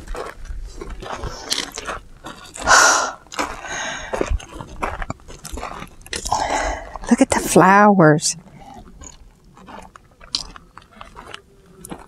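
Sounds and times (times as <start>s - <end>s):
footsteps crunching on gravel: 0.0s - 6.2s, 8.4s - 12.0s
rush of breathy noise: 2.7s - 4.2s.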